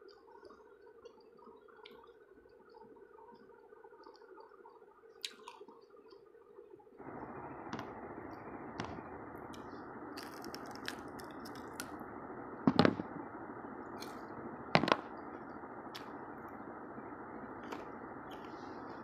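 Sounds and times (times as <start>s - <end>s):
crunchy food chewing: 5.2s - 6.2s, 9.5s - 12.0s, 17.6s - 19.0s
steady hiss: 7.0s - 19.0s.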